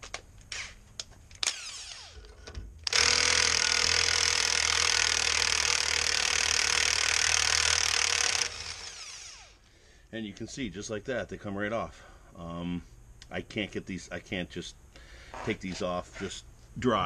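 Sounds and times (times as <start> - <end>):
impact wrench hammering: 2.8 - 9.0.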